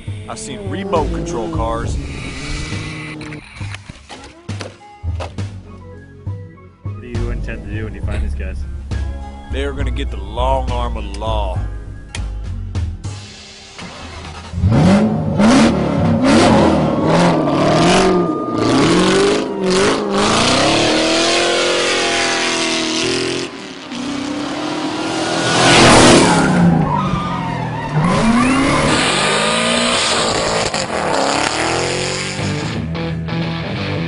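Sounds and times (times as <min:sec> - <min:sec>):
car engine revving: 0:00.0 - 0:03.9, 0:13.0 - 0:34.0.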